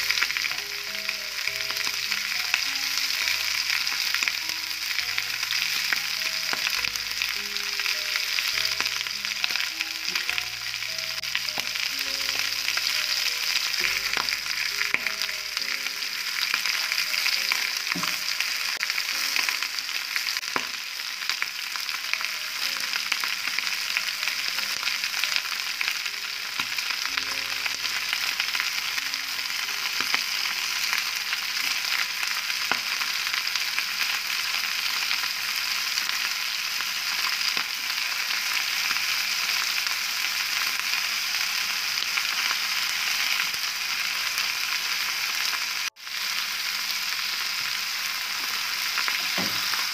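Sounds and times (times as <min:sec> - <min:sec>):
meat sizzling in a pan: 0:00.0 - 0:49.9.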